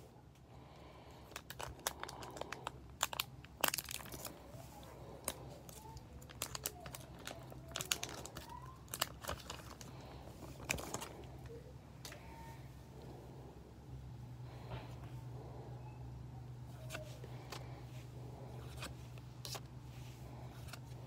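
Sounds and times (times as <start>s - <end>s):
foil wrapper crinkling and tearing: 1.3s - 4.4s, 5.2s - 11.1s.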